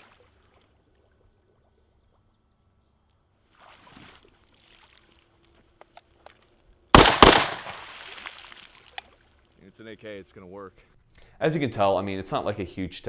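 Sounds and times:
water sloshing and dripping: 0.0s - 2.3s, 3.3s - 6.8s, 7.5s - 9.6s.

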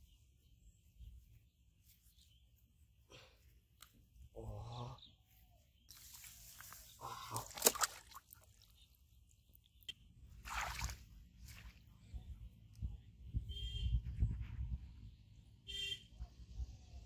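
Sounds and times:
rustle: 5.9s - 7.0s
fish slapping: 6.2s - 8.5s
water splashing in plastic basin: 7.3s - 8.5s, 10.4s - 11.0s.

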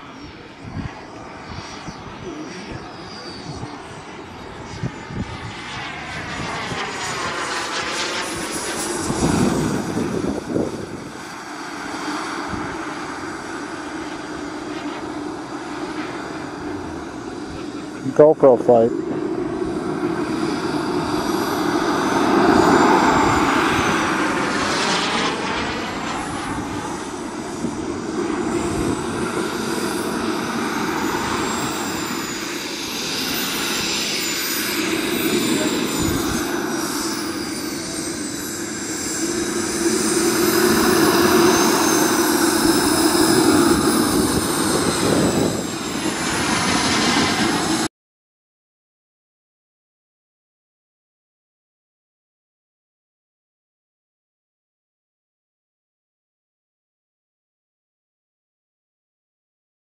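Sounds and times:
model jet turbine whine: 0.0s - 47.9s.

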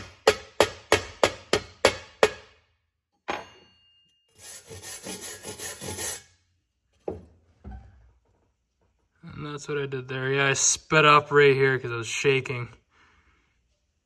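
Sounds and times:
wire brush scrubbing metal: 4.4s - 6.3s.

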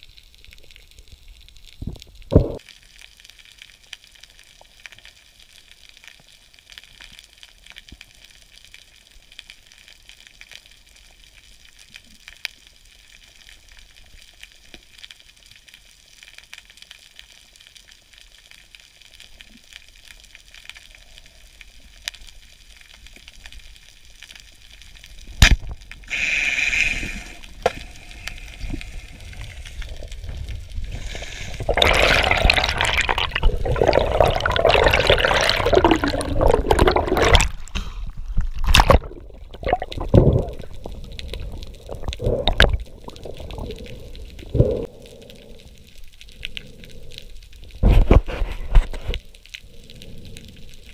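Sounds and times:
low steady hiss: 0.0s - 47.8s
rushing bubbling water: 25.4s - 44.9s.

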